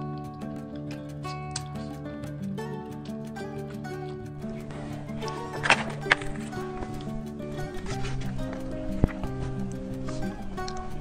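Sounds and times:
background music with steady beat: 0.0 - 11.0
plastic cover rustling: 4.6 - 11.0.

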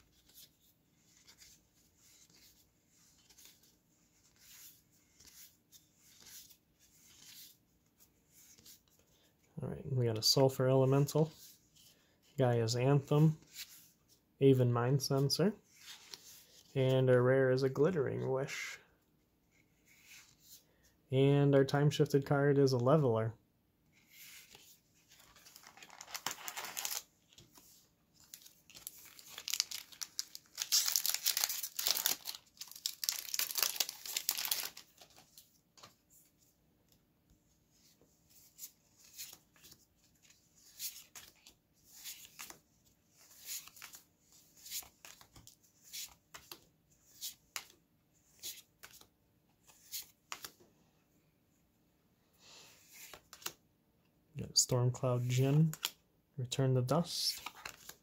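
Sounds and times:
wrapper tearing and crinkling: 25.6 - 27.0, 28.8 - 34.8.

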